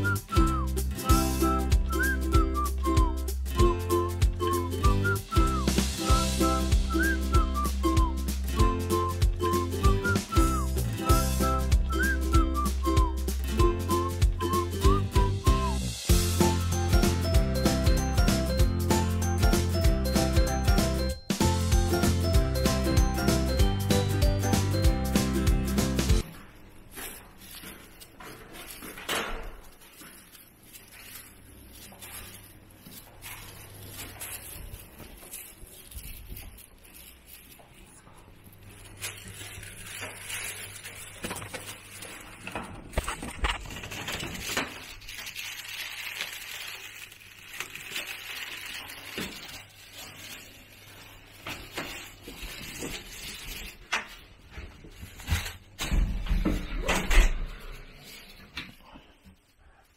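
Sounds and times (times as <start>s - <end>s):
footsteps: 0.0s - 43.8s
rustling: 26.1s - 55.8s.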